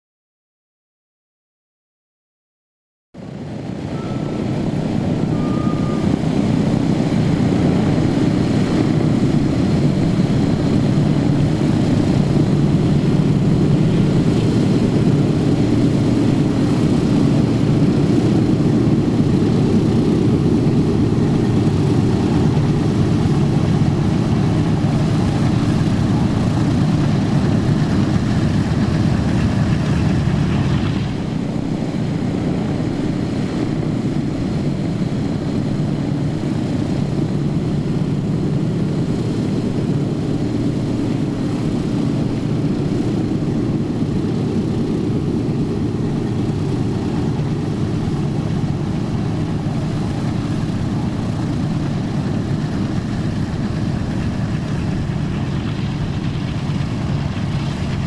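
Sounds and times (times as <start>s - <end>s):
aircraft radial engines droning: 3.2s - 58.0s.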